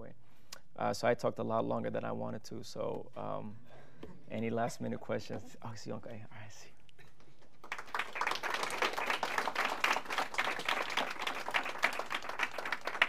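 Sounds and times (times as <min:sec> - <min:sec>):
audience applauding: 0:07.6 - 0:13.0.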